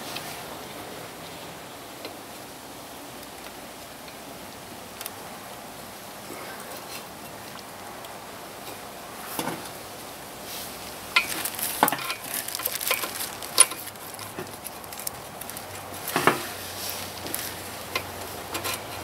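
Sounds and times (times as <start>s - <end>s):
small metal parts clinking: 11.2s - 15.7s.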